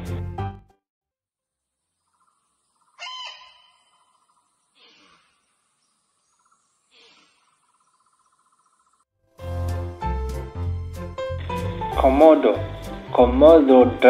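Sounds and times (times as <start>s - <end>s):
music: 0.0s - 0.8s, 9.2s - 14.0s
insects buzzing: 1.7s - 9.0s.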